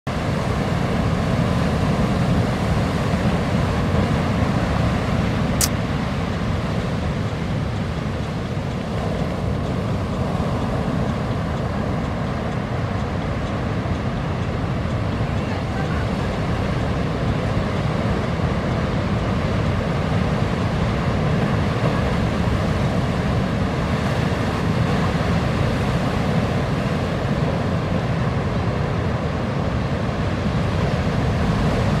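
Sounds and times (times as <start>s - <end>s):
wind: 0.0s - 32.0s
ocean surf rushing: 0.1s - 32.0s.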